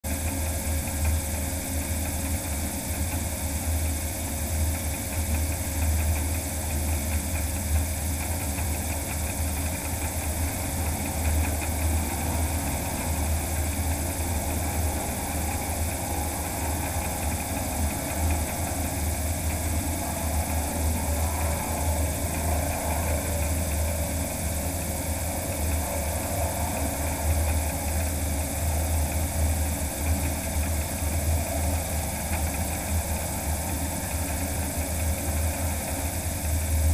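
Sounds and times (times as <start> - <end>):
propeller running: 6.6 - 36.9
low rumble: 13.3 - 34.8.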